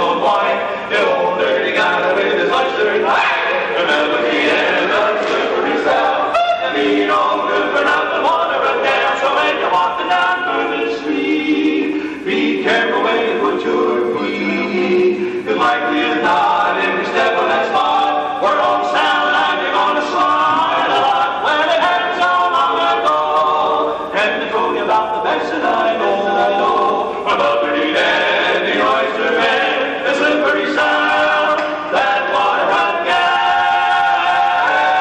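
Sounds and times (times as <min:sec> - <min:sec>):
male quartet singing a cappella: 0:00.0 - 0:35.0.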